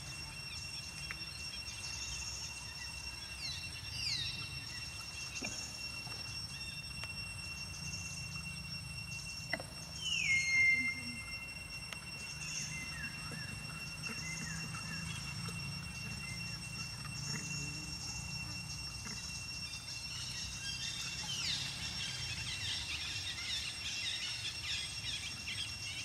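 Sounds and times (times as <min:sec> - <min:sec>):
high insect drone: 0:00.0 - 0:26.0
falling whistled bird calls: 0:09.1 - 0:19.4.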